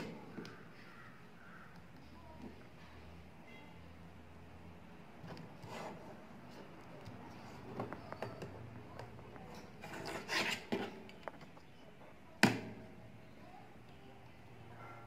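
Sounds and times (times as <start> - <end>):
card rubbing and scraping: 5.4 - 7.7, 9.7 - 11.0.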